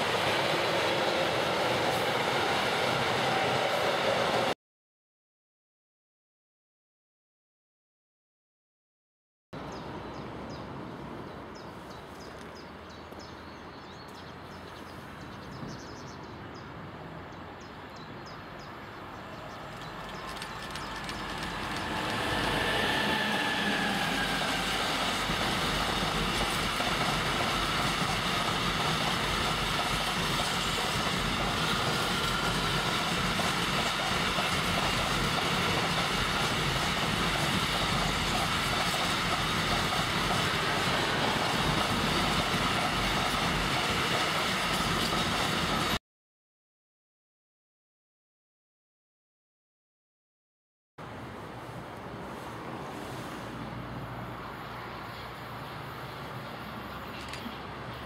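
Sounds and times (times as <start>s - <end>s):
freight train wheels rumbling: 0.0s - 4.6s, 19.1s - 46.0s.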